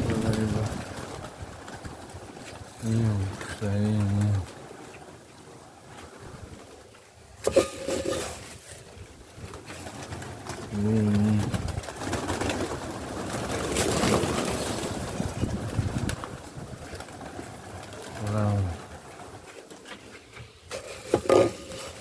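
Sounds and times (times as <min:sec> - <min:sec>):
pigeon wings flapping: 0:00.0 - 0:22.0
pigeons cooing: 0:00.0 - 0:22.0.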